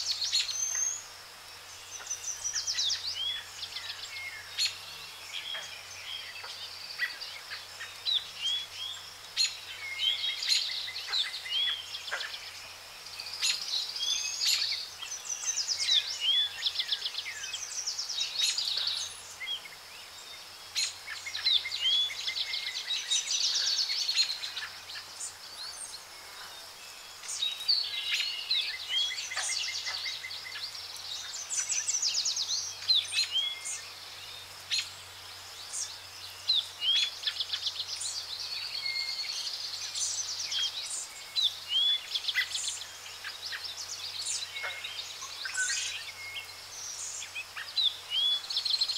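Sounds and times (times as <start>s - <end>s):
light background hiss: 0.0s - 48.9s
songbirds singing: 0.0s - 48.9s.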